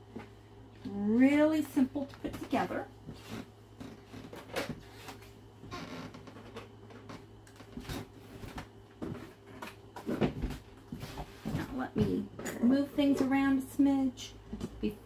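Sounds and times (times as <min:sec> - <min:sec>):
footsteps on hardwood floor: 0:10.0 - 0:12.3.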